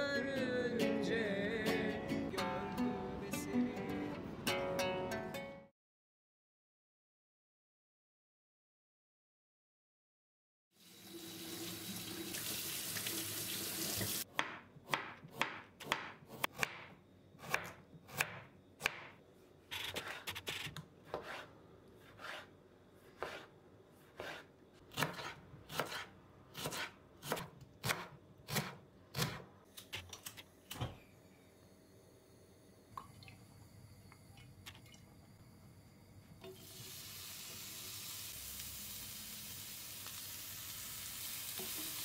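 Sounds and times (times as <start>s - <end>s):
kitchen tap running: 10.8s - 14.3s, 36.4s - 42.0s
knife slicing a tomato: 19.7s - 30.3s.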